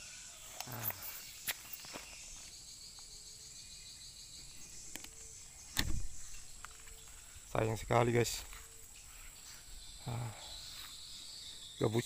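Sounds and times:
insects chirping: 0:00.0 - 0:12.0
dull thump: 0:05.7 - 0:06.4.

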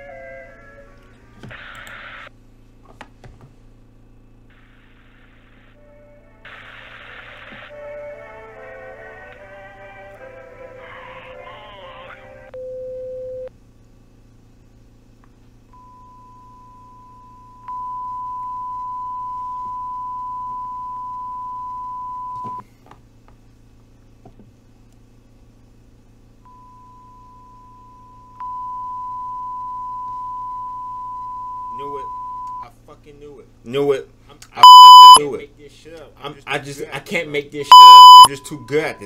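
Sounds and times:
clicks: 0:01.4 - 0:02.0
electronic sine-wave beep tones: 0:15.8 - 0:22.6, 0:26.5 - 0:32.6, 0:34.6 - 0:35.2, 0:37.7 - 0:39.0.

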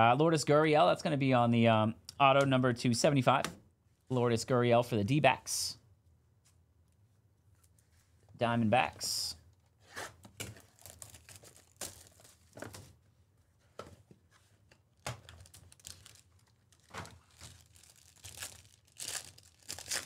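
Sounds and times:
foil wrapper tearing and crinkling: 0:10.7 - 0:12.3, 0:15.2 - 0:20.0.

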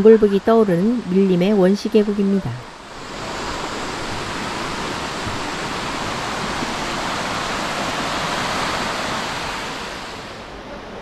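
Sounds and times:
stream rushing over rocks: 0:02.6 - 0:10.6.

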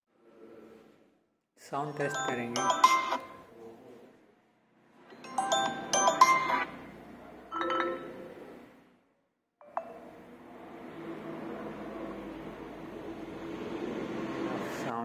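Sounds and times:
bell-like chime tones: 0:02.0 - 0:03.4, 0:05.2 - 0:06.8.

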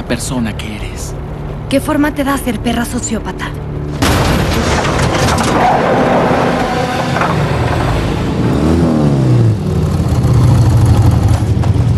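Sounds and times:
car driving: 0:00.0 - 0:11.9
motorcycle engine revving: 0:06.2 - 0:11.9.

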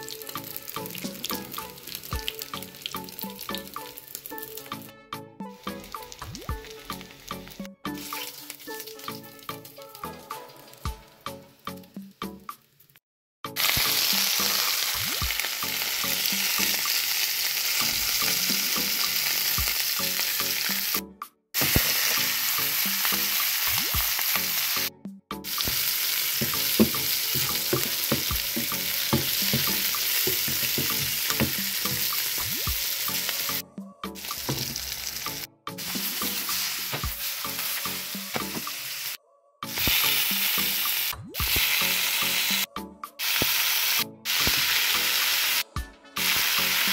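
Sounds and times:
peppers sizzling in oil: 0:00.0 - 0:04.9, 0:05.6 - 0:13.0, 0:13.6 - 0:21.0, 0:21.6 - 0:24.9, 0:25.5 - 0:33.6, 0:34.2 - 0:46.9
peppers clattering in pan: 0:21.6 - 0:24.5, 0:25.5 - 0:33.3, 0:34.2 - 0:38.9.

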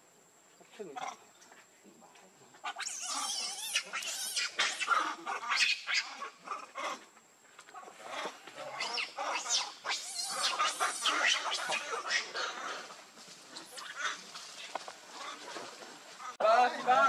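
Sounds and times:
monkeys squealing and screeching: 0:02.6 - 0:07.0, 0:08.0 - 0:15.5.

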